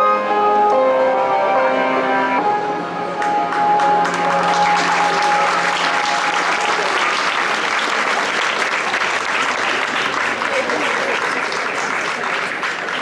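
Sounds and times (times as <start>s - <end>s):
crowd applauding: 3.2s - 13.0s.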